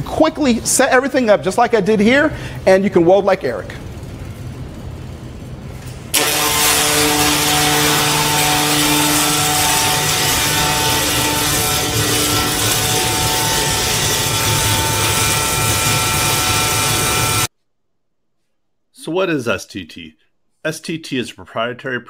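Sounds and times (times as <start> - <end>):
welding arc crackling hiss: 6.1 - 17.5.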